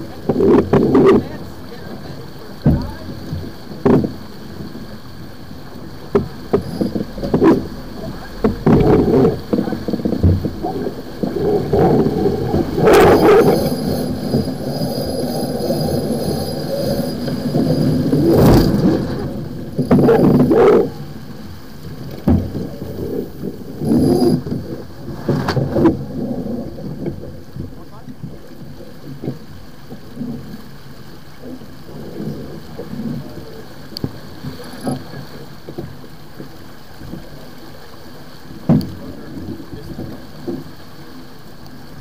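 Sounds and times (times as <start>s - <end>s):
wind on microphone: 0.0s - 30.6s
water along hull: 0.0s - 42.0s.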